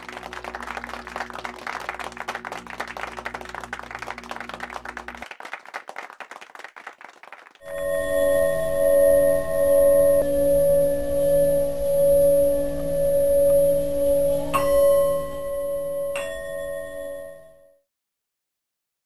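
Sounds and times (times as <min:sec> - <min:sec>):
audience applause: 0:00.0 - 0:07.7
sustained ringing tone music: 0:07.6 - 0:17.8.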